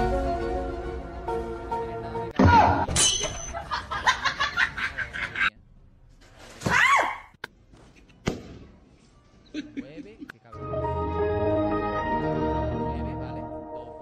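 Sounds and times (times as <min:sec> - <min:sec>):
person laughing: 0:09.5 - 0:10.3.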